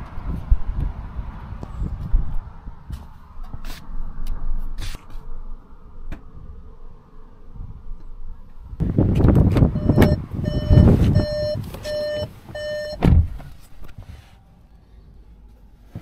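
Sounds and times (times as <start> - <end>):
bumping and rustling in car seat: 8.8 - 14.3
car door shutting thud: 9.2 - 13.5
car warning chime beeping: 9.7 - 13.0.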